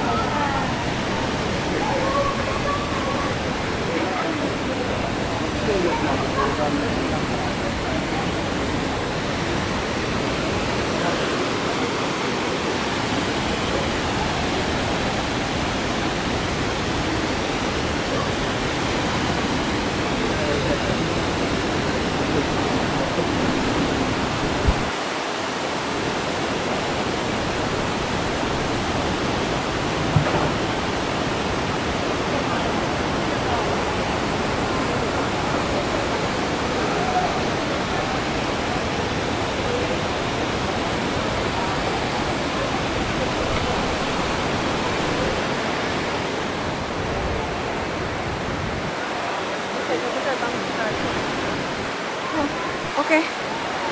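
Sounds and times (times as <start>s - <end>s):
waterfall rushing: 0.0s - 53.9s
low thump: 30.1s - 30.6s.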